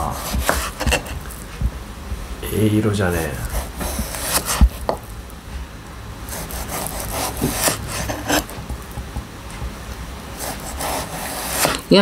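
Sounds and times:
knife sawing through frozen fish: 0:00.0 - 0:01.2, 0:03.5 - 0:04.6, 0:06.3 - 0:08.6, 0:10.4 - 0:11.9.

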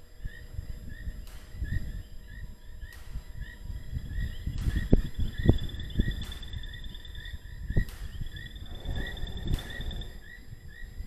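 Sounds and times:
insect low chirp: 0:00.0 - 0:11.0
insect high trill: 0:00.2 - 0:11.0
low thumps: 0:02.9 - 0:11.0.

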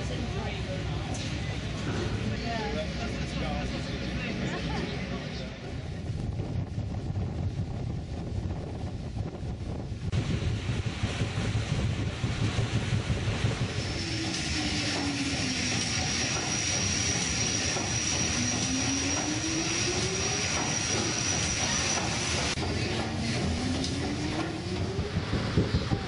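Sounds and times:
steam engine running: 0:10.2 - 0:26.0.

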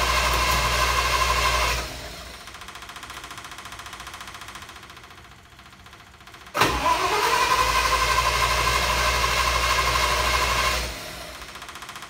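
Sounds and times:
engine cranking with whine: 0:00.0 - 0:03.4, 0:06.6 - 0:12.0.

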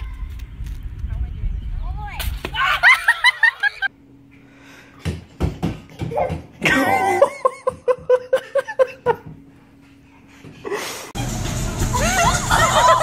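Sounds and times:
person laughing: 0:06.6 - 0:09.3, 0:11.9 - 0:13.0.

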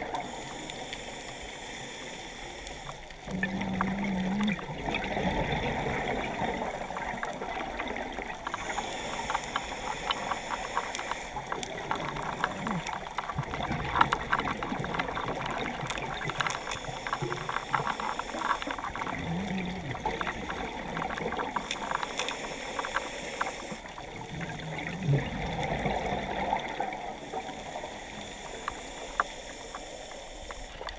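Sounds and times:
scuba regulator breathing: 0:00.0 - 0:04.5, 0:06.0 - 0:24.0, 0:27.5 - 0:30.9
dense crackling clicks: 0:00.0 - 0:30.9
exhaled bubbles rushing: 0:03.3 - 0:08.4, 0:11.4 - 0:22.0, 0:23.9 - 0:27.9.

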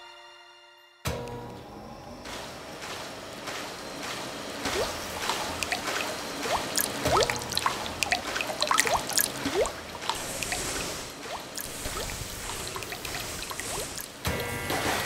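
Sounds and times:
water dripping and bubbling: 0:04.6 - 0:14.5.

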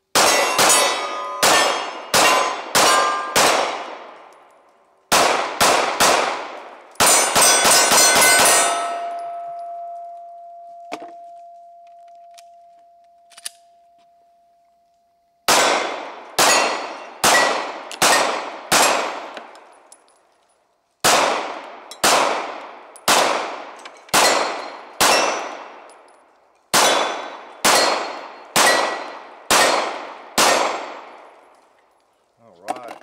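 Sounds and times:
pistol shots: 0:00.1 - 0:04.3, 0:05.1 - 0:09.6, 0:15.5 - 0:19.5, 0:21.0 - 0:25.9, 0:26.7 - 0:31.3
steel targets ringing: 0:00.2 - 0:03.4, 0:07.0 - 0:14.6, 0:16.4 - 0:18.2.

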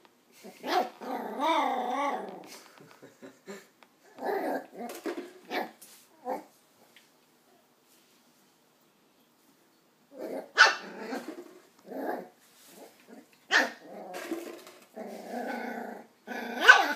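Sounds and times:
puppy growl-barking: 0:00.4 - 0:02.5, 0:04.1 - 0:06.5, 0:10.1 - 0:12.4, 0:13.1 - 0:16.9
puppy yapping: 0:10.3 - 0:11.2, 0:13.5 - 0:13.9, 0:16.6 - 0:16.9.

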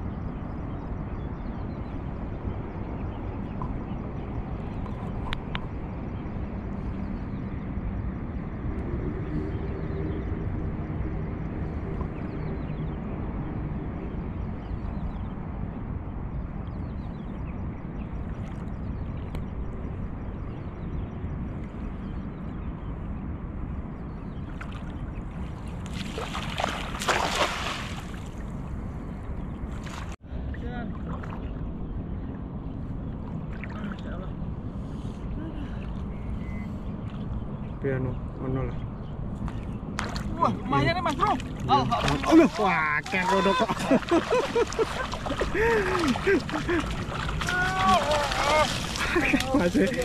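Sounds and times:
low rumble of wind and water: 0:00.0 - 0:50.0
net splashing into water: 0:25.9 - 0:28.2.

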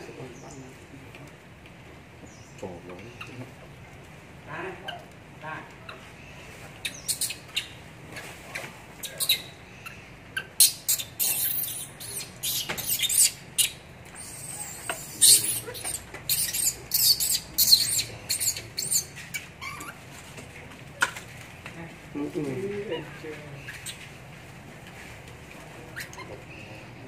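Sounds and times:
baby monkey squealing: 0:06.8 - 0:07.8, 0:09.0 - 0:20.0, 0:23.6 - 0:24.1, 0:25.9 - 0:26.4.

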